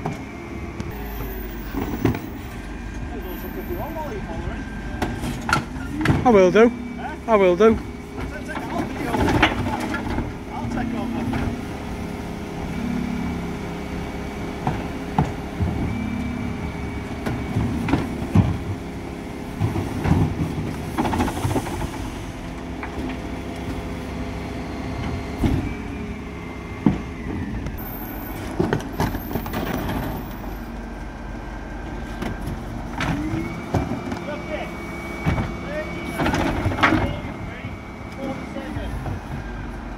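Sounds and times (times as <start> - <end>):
truck engine idling: 0.0 - 39.9
hydraulic lift whine: 0.1 - 8.2, 9.9 - 18.8, 21.8 - 39.7
bins wheeled away: 0.9 - 39.9.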